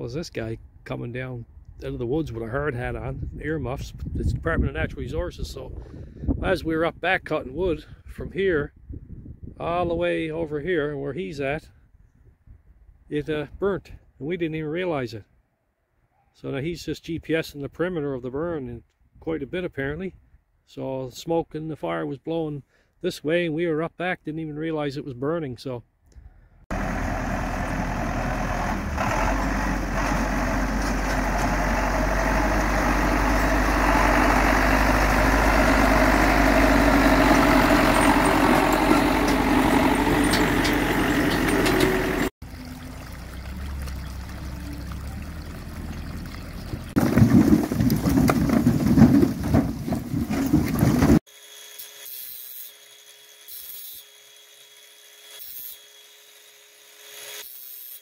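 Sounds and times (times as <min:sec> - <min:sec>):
tractor engine running: 0:26.7 - 0:51.2.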